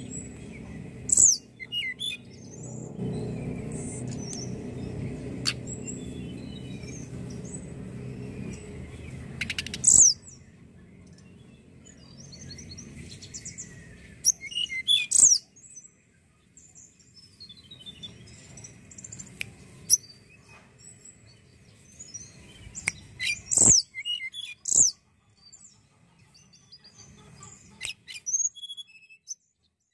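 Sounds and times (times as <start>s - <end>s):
low hum: 0.0s - 14.5s
bird whistling downward notes: 1.1s - 10.3s, 12.4s - 15.5s, 27.8s - 29.4s.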